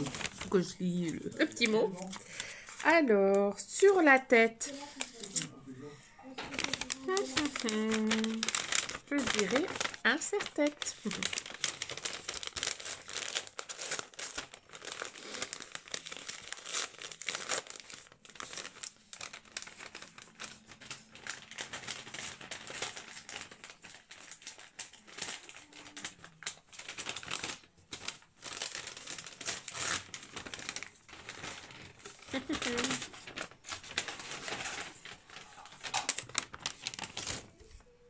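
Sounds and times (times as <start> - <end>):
gift wrapping crinkling and tearing: 0.0 - 38.0.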